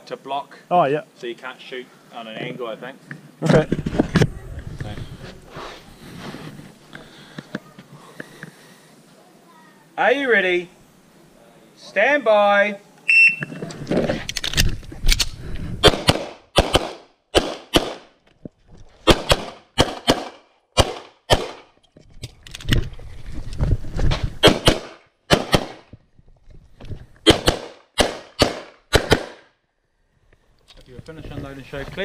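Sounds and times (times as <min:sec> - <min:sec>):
pistol shots: 0:15.8 - 0:18.1, 0:19.1 - 0:21.7, 0:24.4 - 0:25.8, 0:27.2 - 0:29.5.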